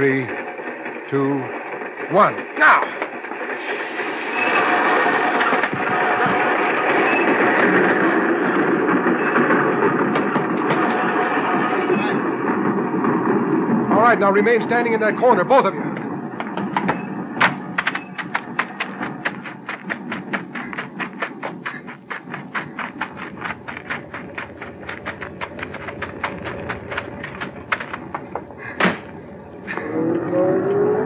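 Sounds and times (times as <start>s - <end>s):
train wheels clicking: 0.0s - 31.0s
loud thud: 28.1s - 29.2s.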